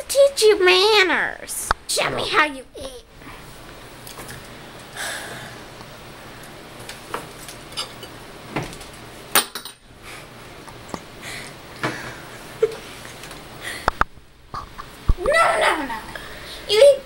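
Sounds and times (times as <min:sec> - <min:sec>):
dishware knocking and clinking: 0:09.4 - 0:09.8.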